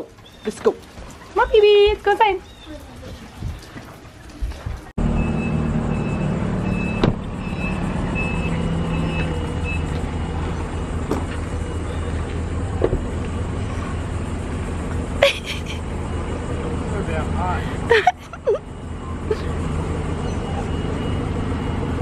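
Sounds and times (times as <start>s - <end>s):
reversing alarm beeping: 5.0s - 12.3s, 18.3s - 22.0s
forklift engine droning: 5.0s - 22.0s.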